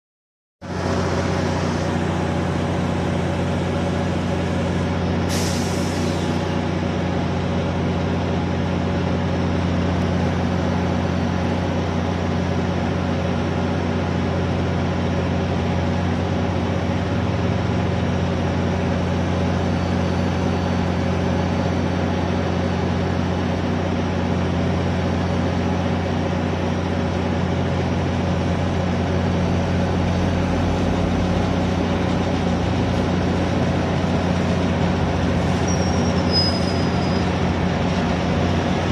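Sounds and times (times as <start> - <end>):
diesel locomotive engine running: 0.6 - 38.9
air hiss: 5.3 - 6.4.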